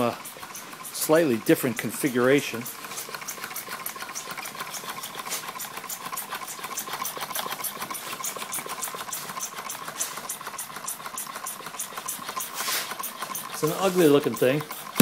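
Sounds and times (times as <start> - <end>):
engine linkages ticking: 0.0 - 15.0.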